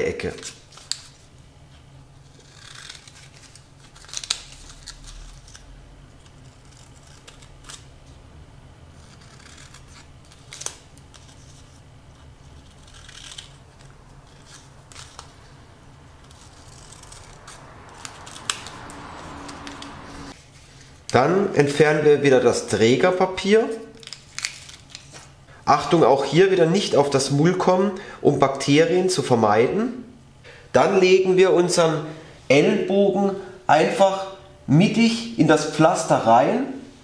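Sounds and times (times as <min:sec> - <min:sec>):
scissors snipping: 0:09.0 - 0:11.4, 0:12.5 - 0:15.4, 0:16.2 - 0:20.3.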